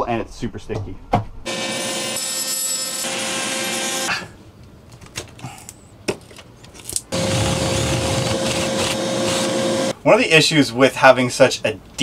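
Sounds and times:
oscillating multi-tool cutting tile: 7.1s - 9.9s.

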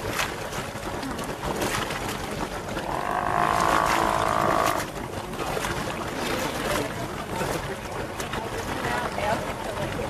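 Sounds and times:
sea lion roaring: 2.8s - 4.9s.

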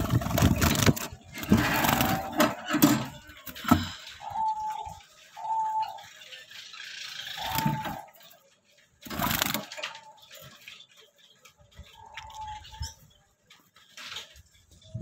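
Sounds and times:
finches calling: 3.5s - 8.2s.

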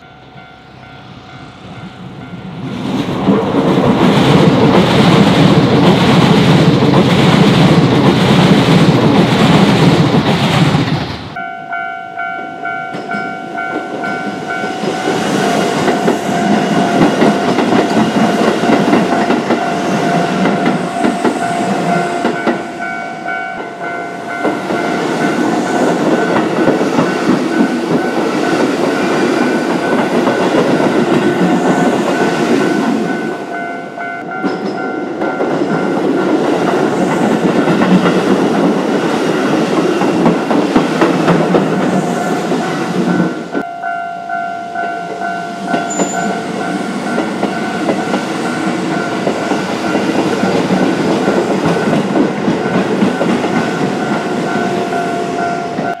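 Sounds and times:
train wheels rumbling on rails: 0.0s - 11.5s, 12.4s - 43.7s, 44.7s - 56.0s
level crossing bells dinging: 43.6s - 52.0s.

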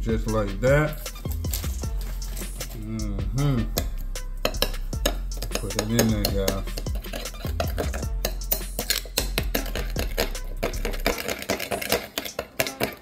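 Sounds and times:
background music: 0.0s - 13.0s
spoon scraping ceramic bowl: 4.4s - 13.0s.

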